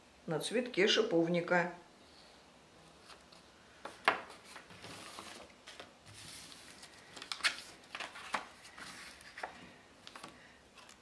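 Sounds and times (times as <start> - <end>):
paper rustling on a table: 2.9 - 11.0.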